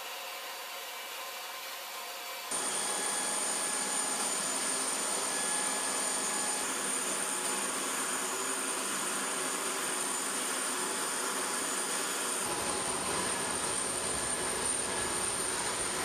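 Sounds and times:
jet turbine rushing: 0:02.5 - 0:16.0.

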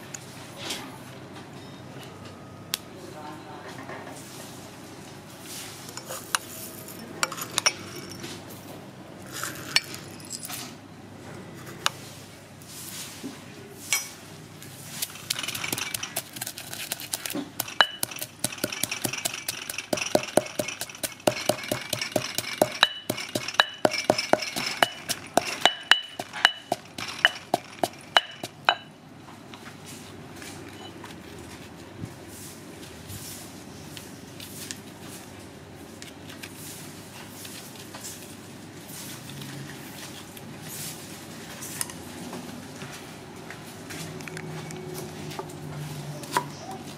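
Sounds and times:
mortar and pestle pounding: 0:15.2 - 0:28.9.

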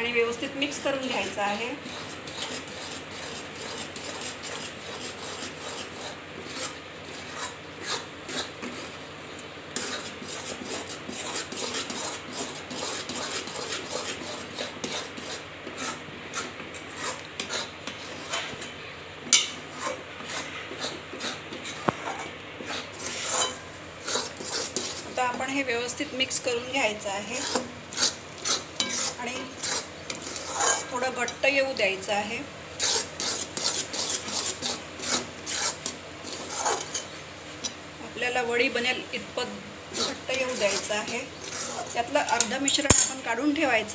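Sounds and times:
metal spatula scraping pan: 0:01.2 - 0:09.0, 0:09.8 - 0:18.7, 0:19.4 - 0:25.5, 0:26.4 - 0:31.5, 0:32.8 - 0:37.8, 0:39.9 - 0:43.3
spatula clinking against pan: 0:28.8 - 0:29.5.

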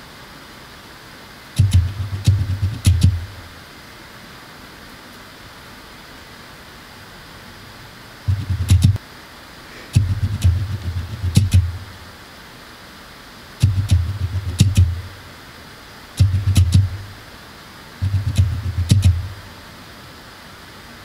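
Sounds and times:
makeup sponge dabbing face: 0:08.3 - 0:09.0, 0:10.0 - 0:12.0, 0:18.0 - 0:19.4.

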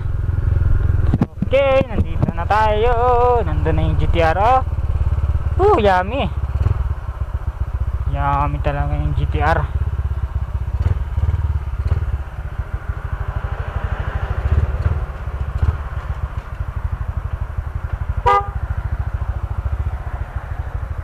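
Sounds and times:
small motorcycle engine puttering: 0:14.4 - 0:18.9
motorcycle horn beep: 0:18.2 - 0:18.7.

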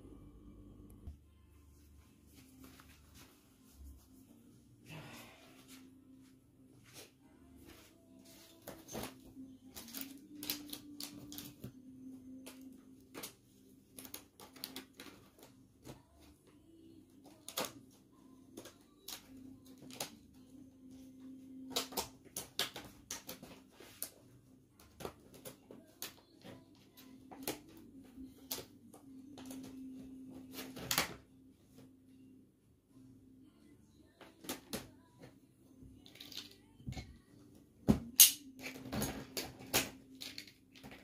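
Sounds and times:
steady low hum: 0:00.0 - 0:02.1.

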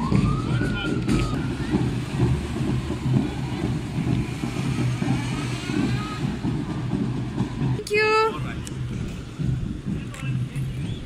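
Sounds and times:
faint siren wail: 0:00.0 - 0:07.8
vehicle engine running: 0:00.0 - 0:10.8.

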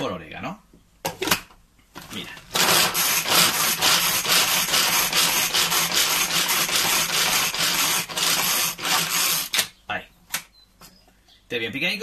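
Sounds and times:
pull-cord food chopper zipping: 0:02.5 - 0:09.6.

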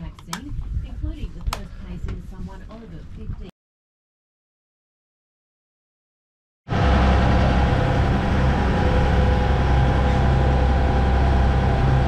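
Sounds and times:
boat engine droning: 0:06.7 - 0:12.0.

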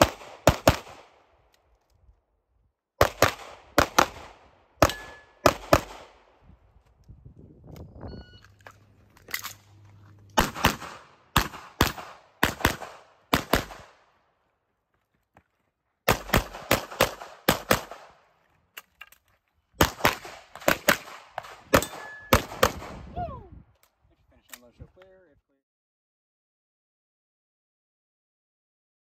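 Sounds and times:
pistol shots: 0:00.0 - 0:01.2, 0:03.0 - 0:06.3, 0:10.4 - 0:14.1, 0:16.1 - 0:18.2, 0:19.8 - 0:23.0.

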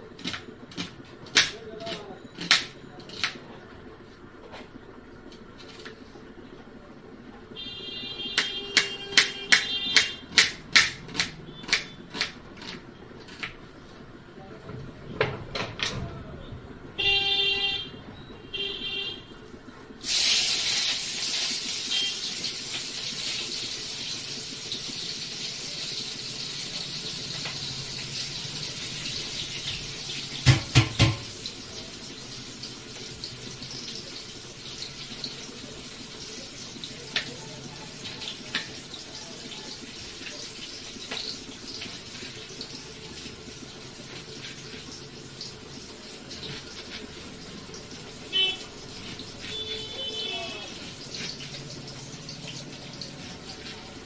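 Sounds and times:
knife chopping on plastic board: 0:00.2 - 0:03.4, 0:08.4 - 0:13.6
tap water running into sink: 0:22.4 - 0:37.4, 0:50.8 - 0:54.0.

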